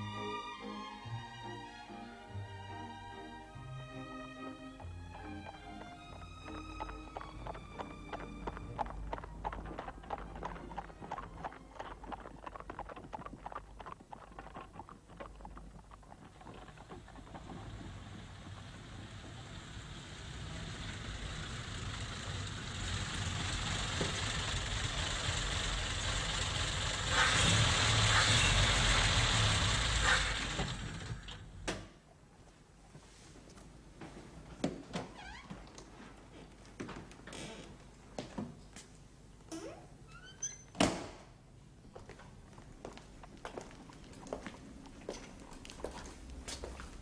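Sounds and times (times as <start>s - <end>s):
car engine approaching: 4.0s - 31.6s
horse hooves clip-clopping: 4.8s - 19.6s, 42.0s - 47.0s.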